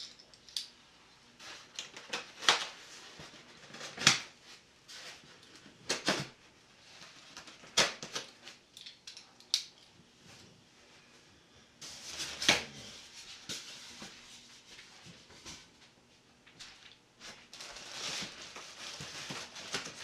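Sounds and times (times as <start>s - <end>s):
cardboard and foam rustling: 1.4s - 8.6s, 11.8s - 15.8s, 16.5s - 20.0s.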